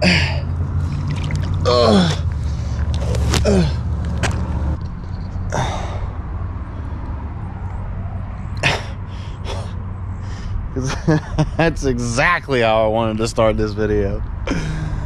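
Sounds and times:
man groaning in pain: 0:00.0 - 0:00.5, 0:01.6 - 0:02.3, 0:03.4 - 0:03.8
man breathing heavily: 0:01.6 - 0:03.9, 0:05.4 - 0:07.4, 0:08.6 - 0:10.8, 0:14.5 - 0:15.0.

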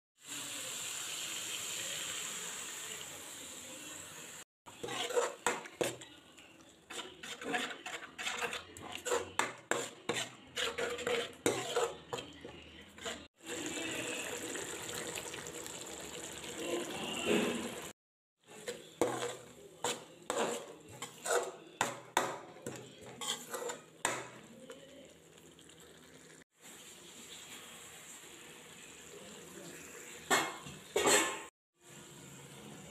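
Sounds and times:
steel spoon scraping a pan: 0:04.7 - 0:06.2, 0:06.8 - 0:14.2, 0:18.4 - 0:24.5, 0:30.0 - 0:31.5
sauce sizzling and bubbling: 0:13.3 - 0:18.0, 0:25.0 - 0:30.3.

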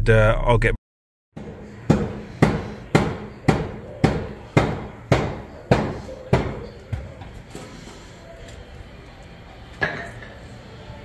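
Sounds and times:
hammer blows: 0:01.4 - 0:07.8.

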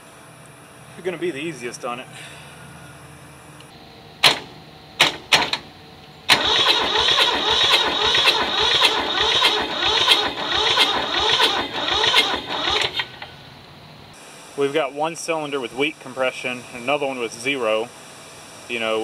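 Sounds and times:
sharp clicks: 0:03.6 - 0:05.7, 0:06.3 - 0:13.3
starter motor cranking diesel engine: 0:04.2 - 0:13.6.

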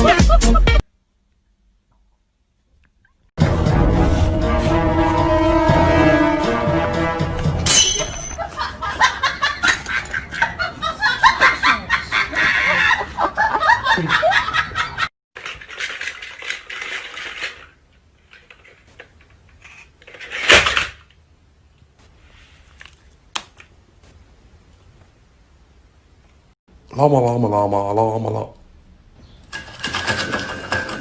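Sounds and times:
background music: 0:03.4 - 0:08.3
people laughing: 0:08.4 - 0:15.1.

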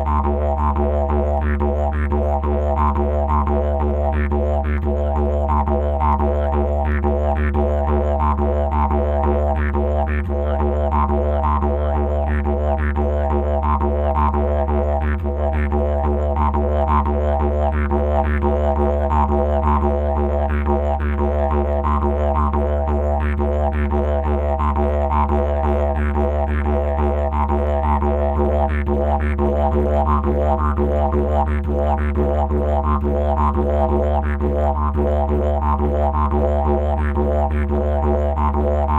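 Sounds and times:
didgeridoo drone: 0:00.0 - 0:38.9.

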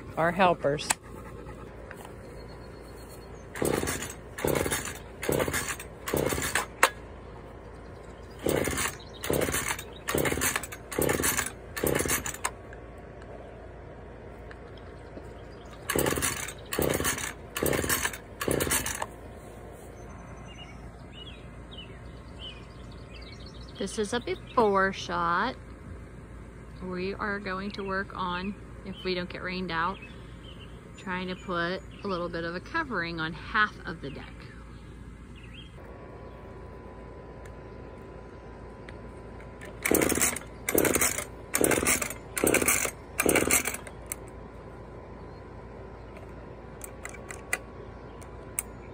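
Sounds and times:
chainsaw starter cord pulls: 0:03.5 - 0:07.0, 0:08.3 - 0:12.6, 0:15.6 - 0:19.2, 0:39.4 - 0:44.4, 0:46.8 - 0:47.6.

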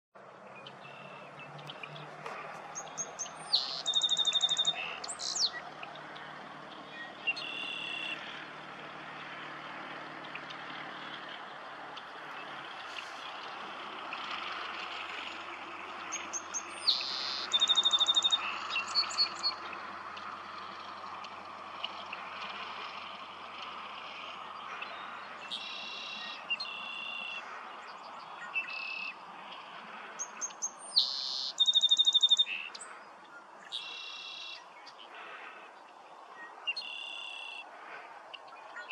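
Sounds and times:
distant birds: 0:00.2 - 0:38.9
songbird trills and whistles: 0:02.8 - 0:05.6, 0:16.1 - 0:19.6, 0:24.9 - 0:27.4, 0:30.2 - 0:32.9, 0:33.7 - 0:35.0.

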